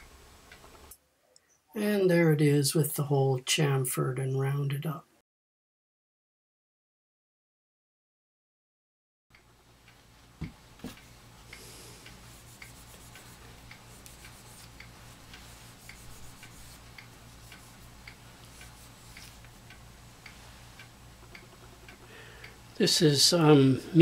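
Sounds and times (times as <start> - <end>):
regular quiet ticking: 0.0 - 1.6, 9.3 - 24.0
low steady hum: 9.3 - 24.0.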